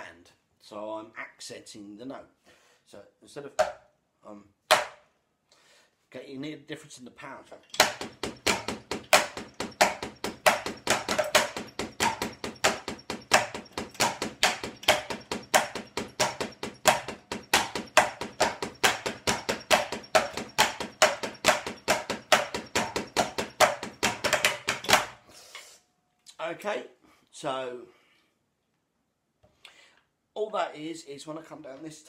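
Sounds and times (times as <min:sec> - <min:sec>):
drumsticks striking practice pads: 0:03.6 - 0:03.8, 0:04.7 - 0:05.0, 0:07.7 - 0:25.2.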